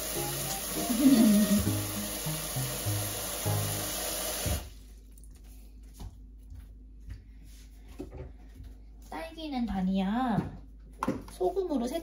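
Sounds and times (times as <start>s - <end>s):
background music: 0.0s - 4.7s
tap water running into sink: 0.0s - 4.8s.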